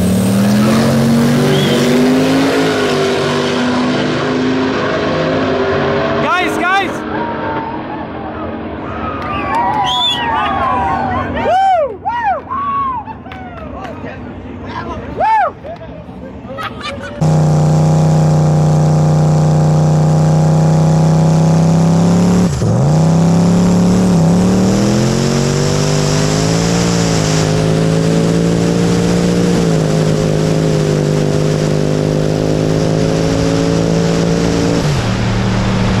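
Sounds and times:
car engine at full throttle: 0.0 - 8.9, 17.2 - 36.0.

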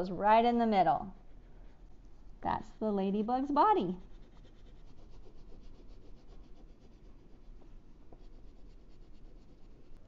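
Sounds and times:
crayon rubbing on paper: 3.7 - 10.0.

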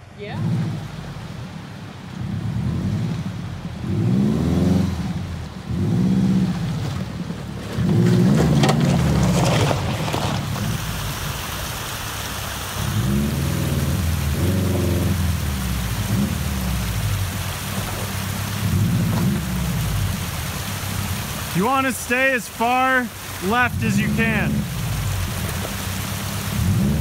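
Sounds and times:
car engine revving: 0.0 - 11.6, 12.4 - 27.0
stones crunching under tyres: 6.8 - 10.8.

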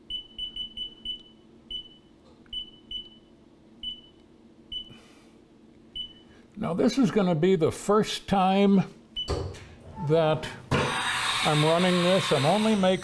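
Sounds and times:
low machine hum: 0.0 - 13.0
control panel key beeps: 0.1 - 4.9, 6.0 - 6.2.

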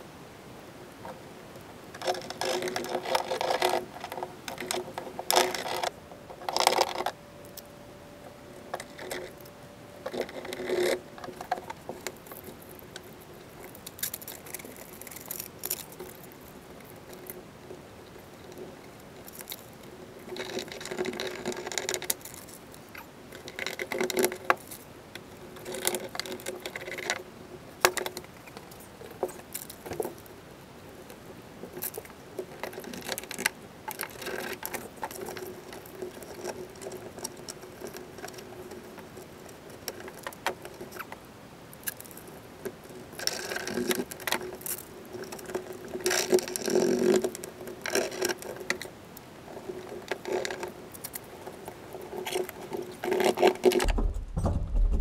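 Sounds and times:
faint steady hum: 0.0 - 55.0
rustling and scraping of foil: 2.0 - 7.8, 8.6 - 17.4, 41.8 - 48.9.

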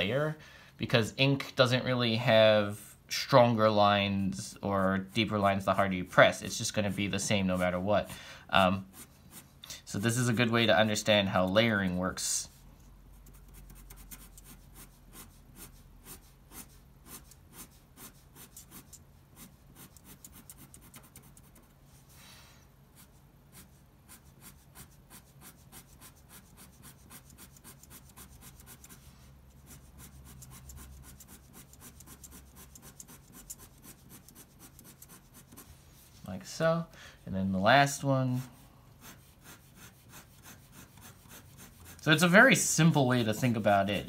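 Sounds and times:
pen scratching on paper: 13.1 - 21.7, 23.0 - 35.7, 38.4 - 43.7.

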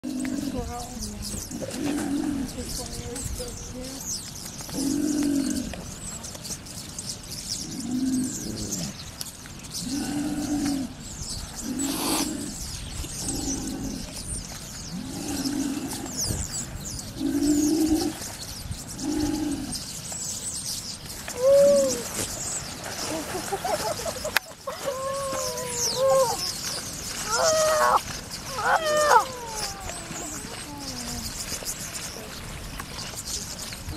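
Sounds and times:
low hooting calls: 21.3 - 22.2, 23.0 - 32.4
rising-then-falling call: 27.2 - 30.7.

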